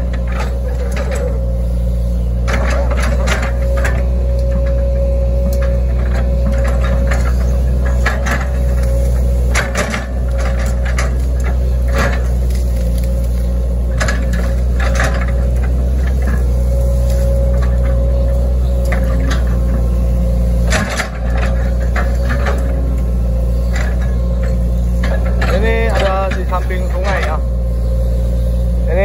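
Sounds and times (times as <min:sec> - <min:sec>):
excavator diesel engine: 0:00.0 - 0:29.0.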